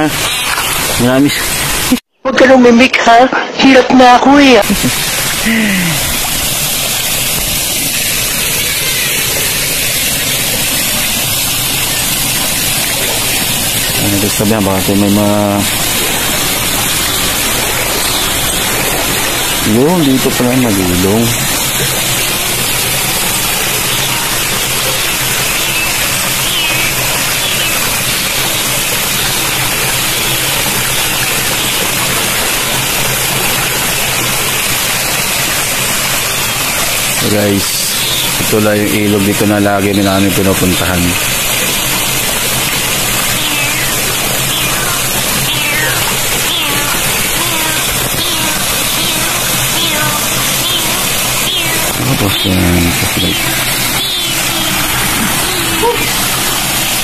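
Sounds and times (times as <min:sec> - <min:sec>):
rushing river water: 0:04.4 - 0:57.0.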